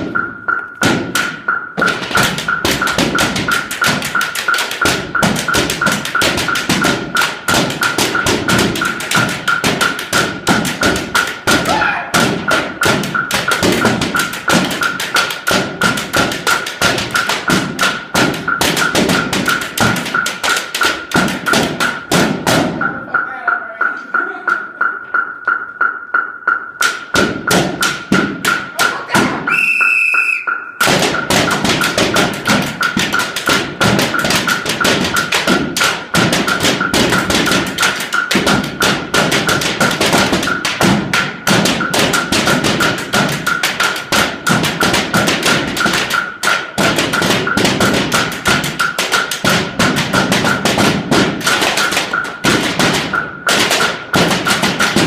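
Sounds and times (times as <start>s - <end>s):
steady high beeping pulse: 0.0s - 11.5s, 29.4s - 39.1s
marching bass drums: 0.0s - 24.9s, 27.0s - 29.5s, 30.8s - 55.0s.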